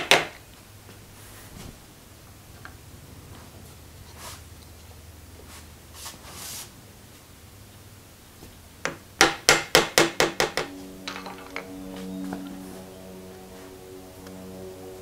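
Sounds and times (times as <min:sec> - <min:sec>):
background music with held notes: 0:10.2 - 0:15.0.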